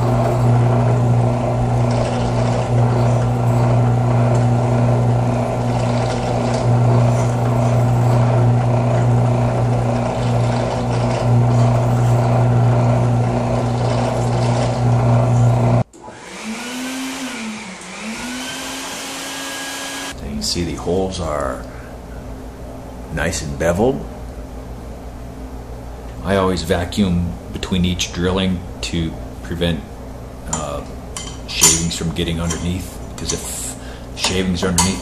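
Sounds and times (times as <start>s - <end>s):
drill press motor hum: 0.0s - 20.2s
whirring rising and falling: 14.8s - 20.1s
drill bit cutting aluminium: 16.6s - 20.1s.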